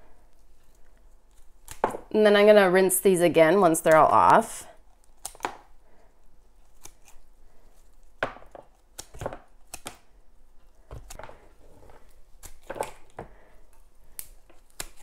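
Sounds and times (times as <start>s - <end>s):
hand pruners snipping roots: 1.3s - 1.9s, 3.9s - 5.7s, 6.6s - 7.2s, 8.8s - 10.0s, 12.4s - 13.1s, 14.1s - 15.0s.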